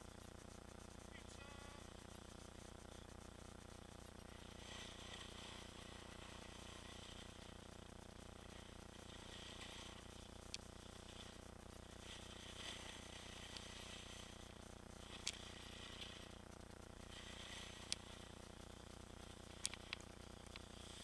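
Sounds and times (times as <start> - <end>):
steady low hum: 0.0 - 21.0
skis hissing over snow: 1.0 - 21.0
sharp clicks: 19.6 - 20.7.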